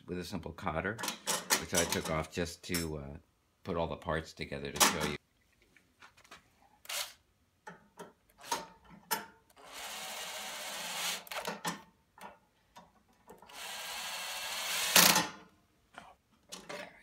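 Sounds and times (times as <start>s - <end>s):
cordless drill whirring: 9.6s - 11.5s, 13.5s - 15.1s.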